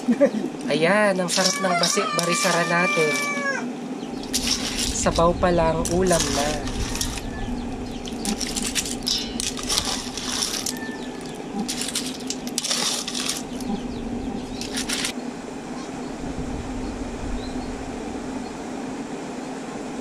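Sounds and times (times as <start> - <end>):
clam shells clinking in metal bowl: 1.2 - 3.4, 4.2 - 5.2, 5.8 - 7.3, 8.0 - 13.8, 14.4 - 15.1.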